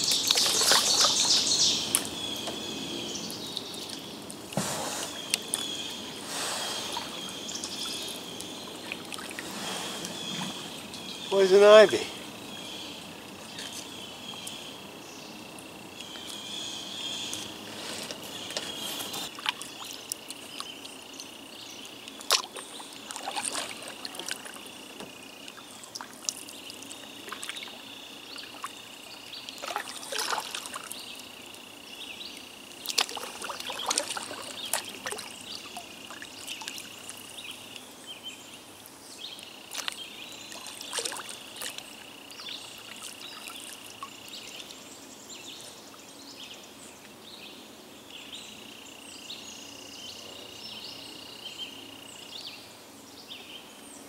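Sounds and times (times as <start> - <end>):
water splashing off paddles: 0.0 - 2.8, 3.5 - 12.3, 22.1 - 28.8, 29.4 - 31.0, 32.8 - 37.3, 39.7 - 44.8
high insect drone: 0.0 - 54.0.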